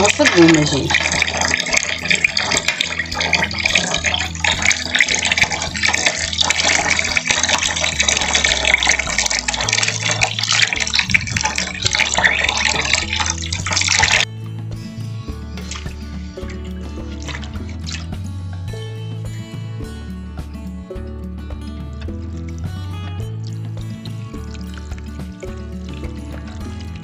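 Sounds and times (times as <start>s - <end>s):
tap water splashing into pan: 0.0s - 14.3s, 15.6s - 18.2s
background music: 0.0s - 27.0s.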